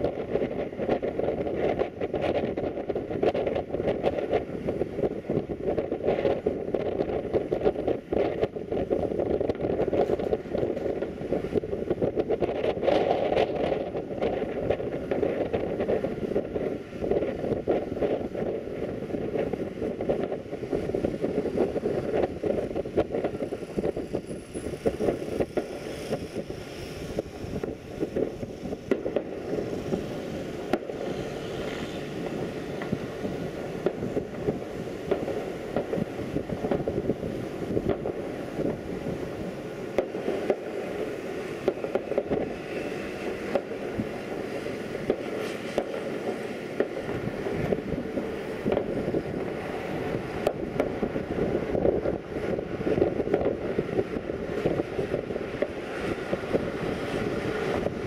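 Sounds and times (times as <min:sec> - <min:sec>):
wind buffeting microphone: 0:00.0 - 0:58.0
short thumps and pops: 0:27.2 - 0:31.2, 0:46.7 - 0:52.2.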